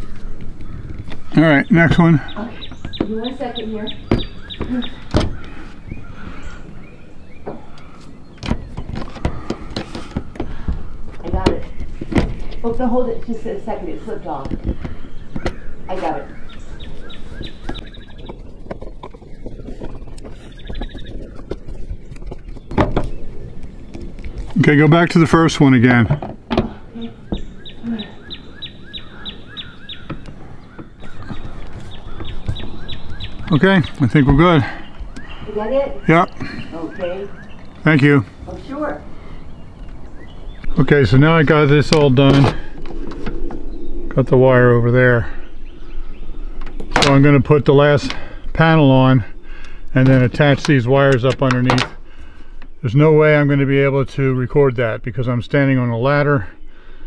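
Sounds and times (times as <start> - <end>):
songbird whistling: 2.3 - 8.4, 15.0 - 18.6, 27.0 - 34.0, 34.8 - 37.8.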